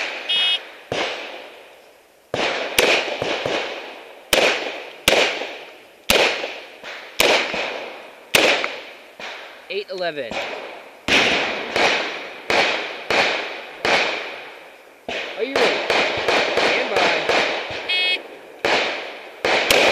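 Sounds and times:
shot timer beep: 0.3 - 0.6, 17.9 - 18.2.

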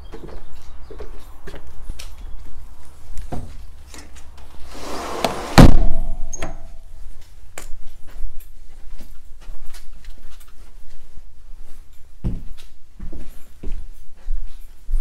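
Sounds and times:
door banging shut: 4.7 - 6.7
footsteps on floor: 7.1 - 15.0.

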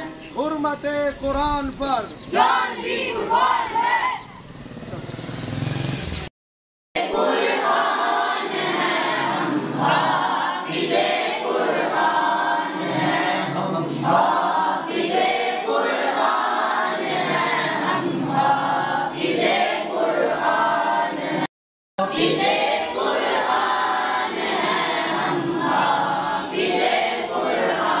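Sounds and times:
young male chorus singing: 2.3 - 4.2, 7.0 - 28.0.

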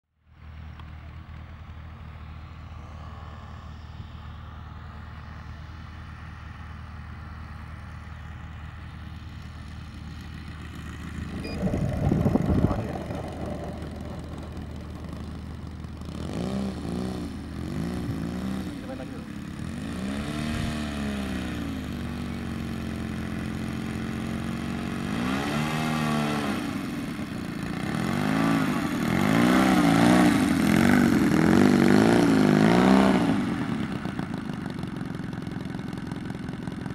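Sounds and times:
model aircraft engine running: 0.3 - 36.9
rush of noise: 11.1 - 19.2.

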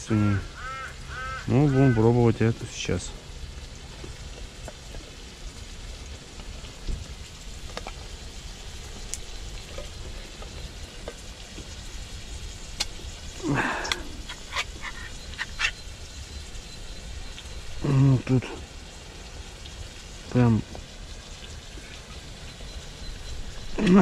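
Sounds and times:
can lid scraping crunch: 13.9 - 15.8.

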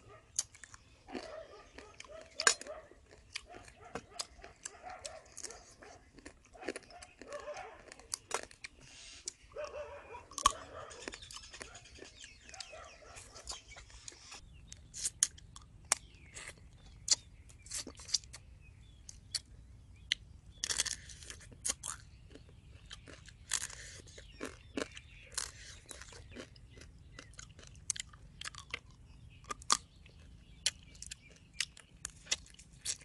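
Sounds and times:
wet chewing: 0.0 - 33.0
crab shell crunching: 20.2 - 33.0.

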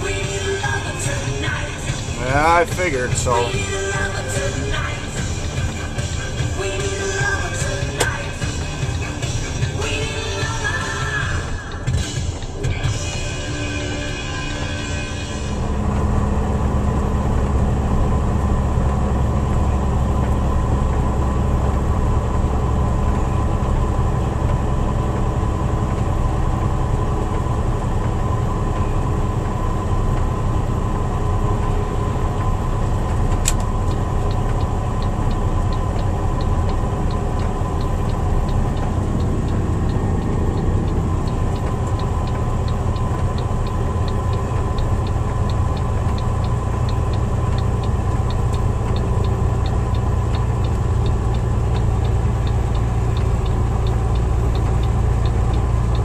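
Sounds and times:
truck cab engine and road drone: 0.0 - 56.0
quick regular ticking: 33.1 - 56.0.

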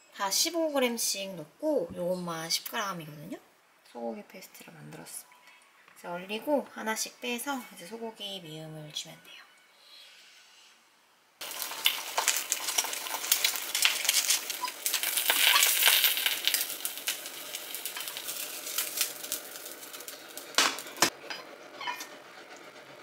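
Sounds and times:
noodles sizzling in saucepan: 11.4 - 21.2.

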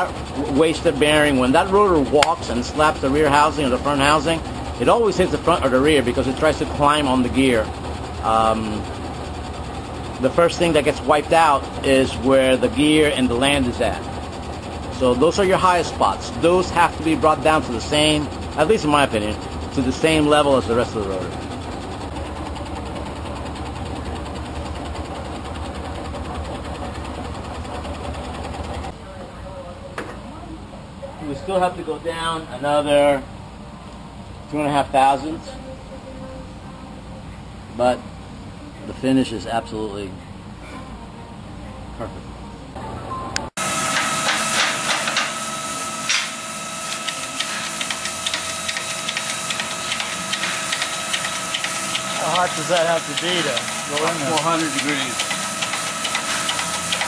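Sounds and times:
lathe tool cutting metal: 0.0 - 28.9, 43.6 - 57.0
metal lathe running: 0.0 - 29.0, 43.6 - 57.0
shop press whine and hum: 0.0 - 29.4, 41.3 - 57.0.

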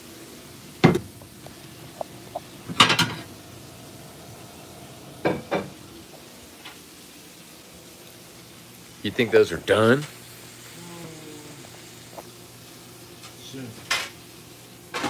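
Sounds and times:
steaks sizzling in a pan: 0.0 - 15.0.

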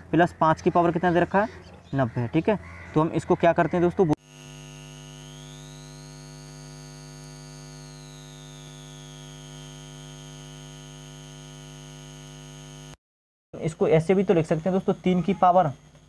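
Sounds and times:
electrical mains hum: 4.2 - 13.0, 13.6 - 16.0
faint high whine: 4.2 - 13.0, 13.6 - 16.0.

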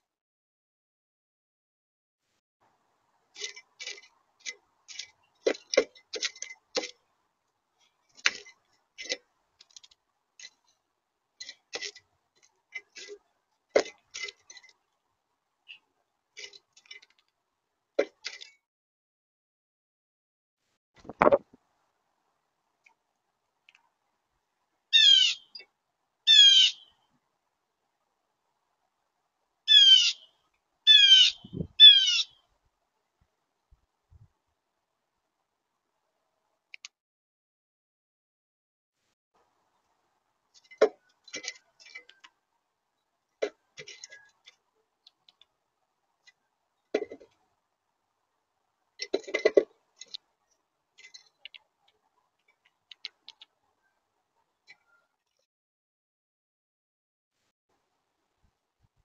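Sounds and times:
blue jay calls: 24.9 - 25.7, 26.3 - 27.0, 29.7 - 32.4.

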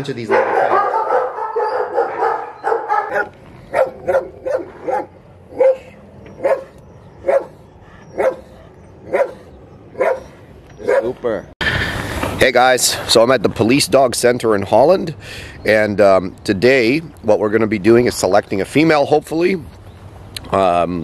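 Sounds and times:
single dog barking: 0.3 - 7.6, 8.2 - 8.4, 9.1 - 9.4, 10.0 - 11.2
dogs barking and yipping: 0.3 - 11.4.

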